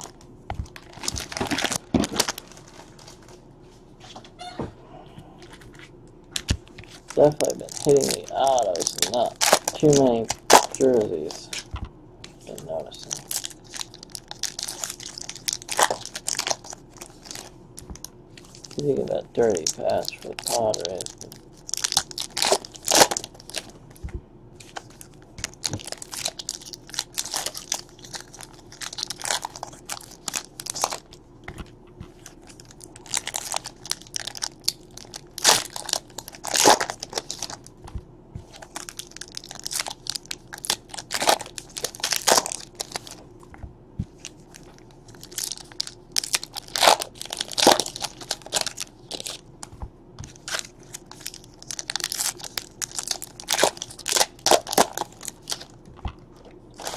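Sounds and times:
plastic wrappers crinkling and tearing: 0:00.0 - 0:03.4, 0:05.4 - 0:11.8, 0:12.4 - 0:24.0, 0:24.6 - 0:37.8, 0:38.4 - 0:43.2, 0:44.1 - 0:56.9.

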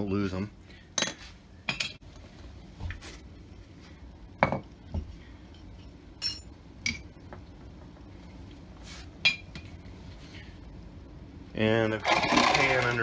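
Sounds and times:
metal parts clinking on tray: 0:06.2 - 0:06.5.

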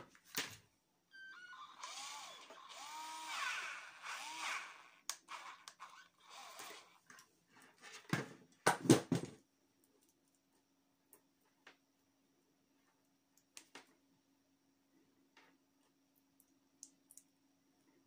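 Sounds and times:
cordless drill motor whirring: 0:01.1 - 0:07.0
faint steady hum: 0:09.4 - 0:18.0.

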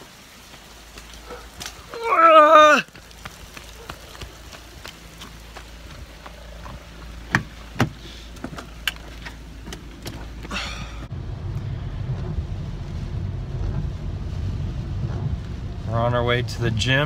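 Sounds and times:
raindrops tapping on microphone: 0:00.0 - 0:17.0
car cabin low rumble: 0:03.8 - 0:17.0.

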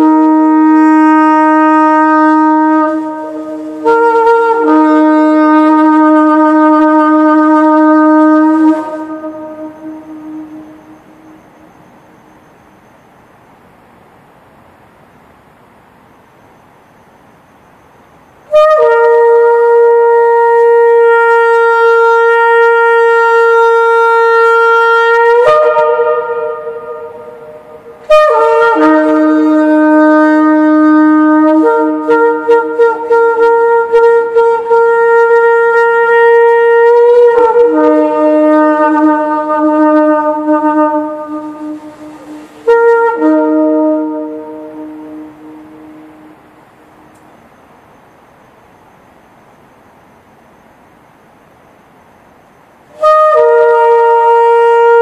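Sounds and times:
shofar blasts echoing: 0:00.0 - 0:11.6, 0:18.5 - 0:46.7, 0:52.9 - 0:55.0.

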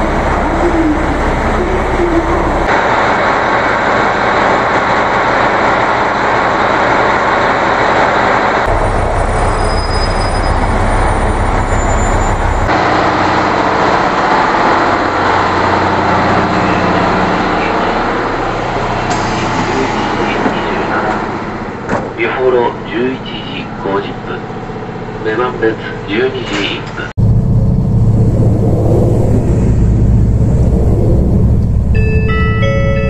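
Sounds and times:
diesel railcar engine idling: 0:00.0 - 0:33.0.

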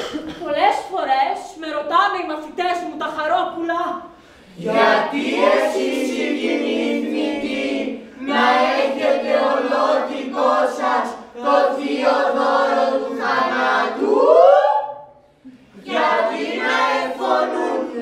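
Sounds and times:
chorus singing unaccompanied: 0:04.5 - 0:15.0, 0:15.7 - 0:18.0.

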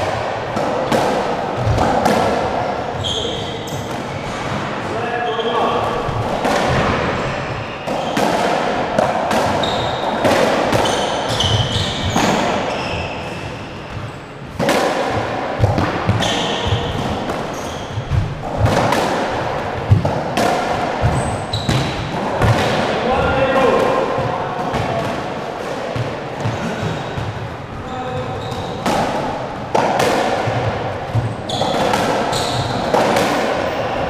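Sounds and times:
squash ball smacking: 0:00.0 - 0:04.7, 0:05.8 - 0:23.0, 0:28.4 - 0:34.0
shoes squeaking on wooden floor: 0:02.9 - 0:04.5, 0:09.5 - 0:10.2, 0:10.8 - 0:14.5, 0:16.1 - 0:18.5, 0:21.0 - 0:22.0, 0:26.4 - 0:28.8, 0:31.2 - 0:33.0.

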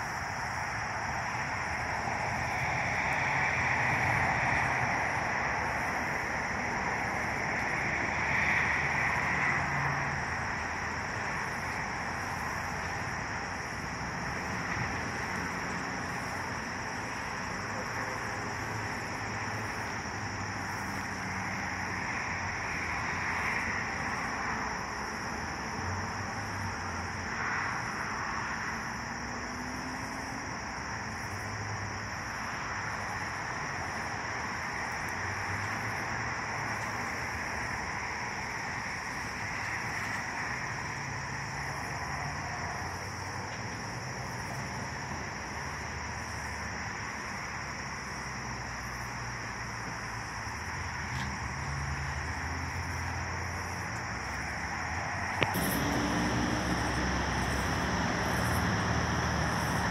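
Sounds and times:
distant train rumble: 0:53.6 - 0:59.9.

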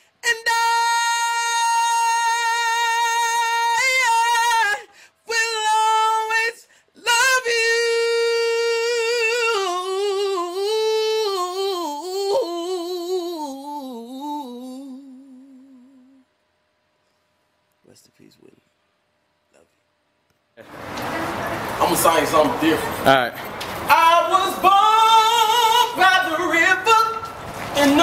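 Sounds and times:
man singing unaccompanied: 0:00.2 - 0:16.2, 0:23.9 - 0:28.0.

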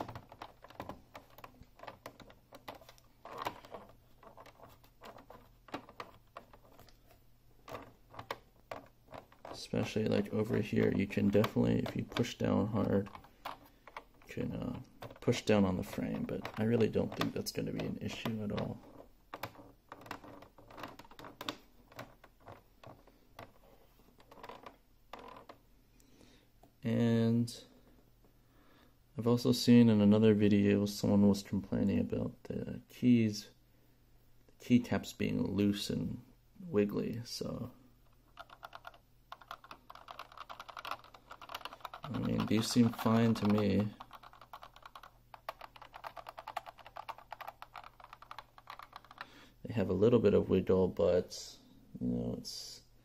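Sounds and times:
keyboard clicking and rattling: 0:00.0 - 0:23.6, 0:24.2 - 0:25.6, 0:38.1 - 0:49.4.

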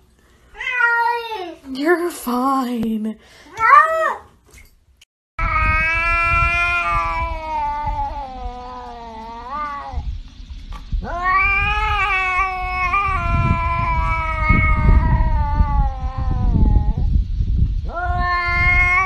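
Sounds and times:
cat yowling: 0:00.6 - 0:01.5, 0:05.4 - 0:10.1, 0:11.0 - 0:17.1, 0:17.9 - 0:19.0.

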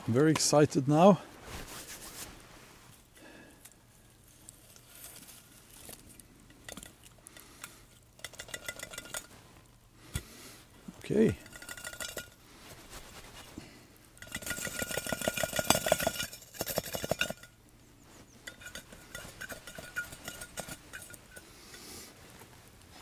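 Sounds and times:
metal can clinking and rattling: 0:08.1 - 0:09.4, 0:11.3 - 0:12.4, 0:14.2 - 0:17.6, 0:18.4 - 0:21.4.

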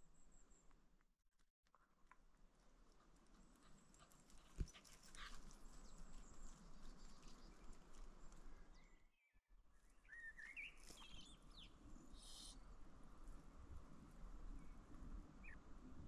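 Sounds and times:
faint outdoor ambience: 0:01.7 - 0:16.0
bird chirping: 0:10.0 - 0:12.6.

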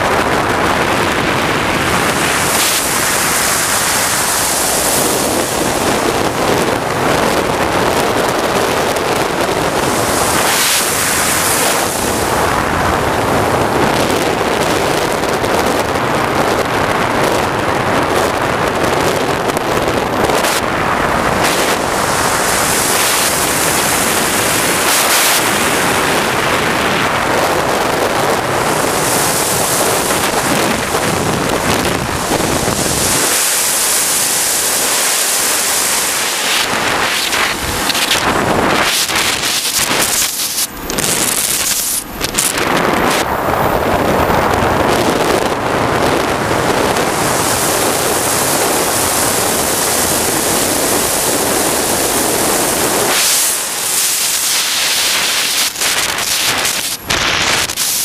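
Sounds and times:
jet turbine and wind rush: 0:00.0 - 0:58.0
high hiss: 0:32.8 - 0:42.1, 0:52.5 - 0:58.0.

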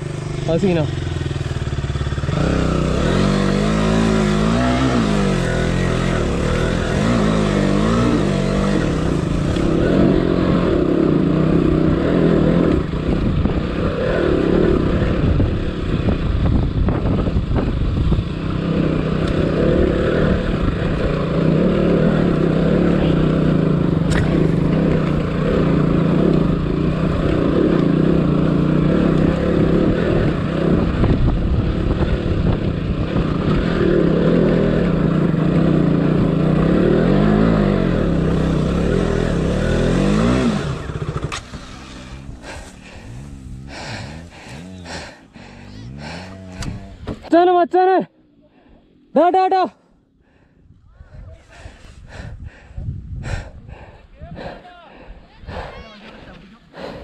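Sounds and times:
motorcycle engine revving: 0:00.0 - 0:49.5.

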